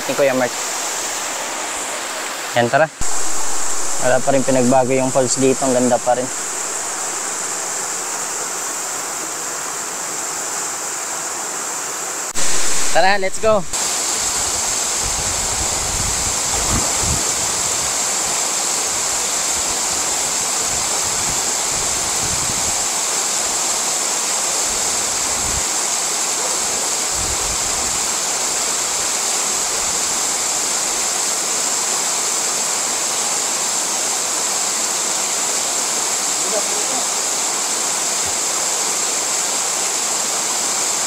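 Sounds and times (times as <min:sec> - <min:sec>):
waterfall rushing: 0:00.0 - 0:41.0
low rumbles on microphone: 0:15.1 - 0:17.6.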